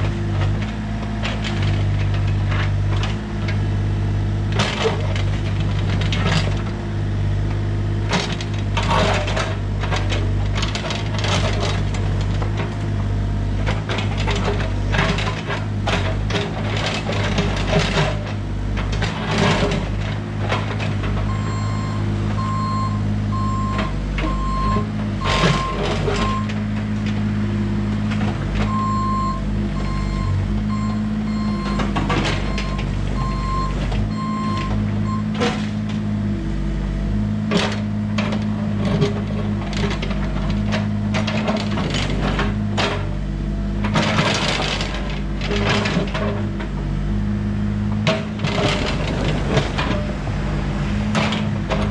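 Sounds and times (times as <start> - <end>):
excavator diesel engine: 0.0 - 51.9
backup alarm beeping: 21.3 - 26.5, 28.7 - 35.4.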